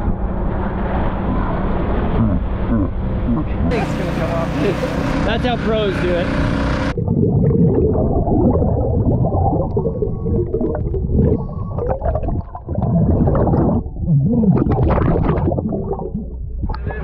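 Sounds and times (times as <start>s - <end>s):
underwater air bubbles: 7.0s - 17.0s.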